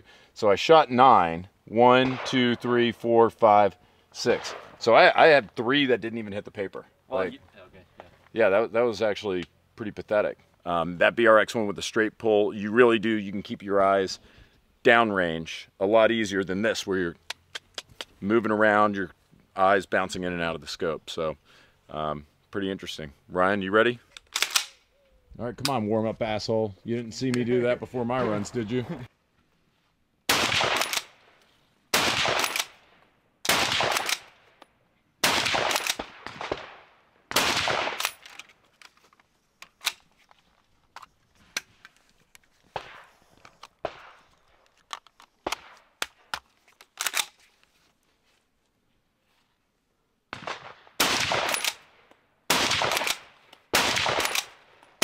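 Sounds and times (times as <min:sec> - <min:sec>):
rifle shots: 0:01.9 - 0:02.9, 0:04.2 - 0:04.9, 0:30.3 - 0:31.2, 0:31.9 - 0:34.4, 0:35.2 - 0:38.3, 0:42.8 - 0:43.1, 0:43.8 - 0:44.2, 0:50.3 - 0:54.7
rifle magazine change clicks: 0:24.1 - 0:24.8, 0:38.0 - 0:40.2, 0:43.4 - 0:47.4, 0:51.5 - 0:51.8, 0:54.2 - 0:54.9.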